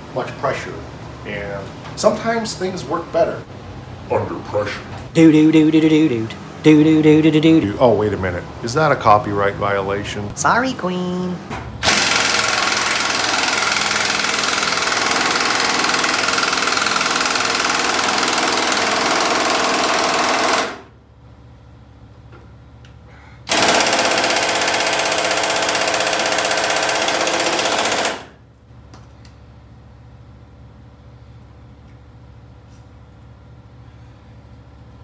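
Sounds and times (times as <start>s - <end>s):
pneumatic impact wrench hammering: 11.8s - 20.9s, 23.5s - 28.4s.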